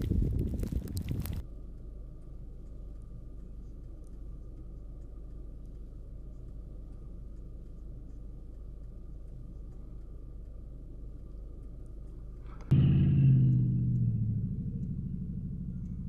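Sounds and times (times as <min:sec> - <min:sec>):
faint constant hum: 0:00.0 - 0:16.0
steady low rumble: 0:00.0 - 0:16.0.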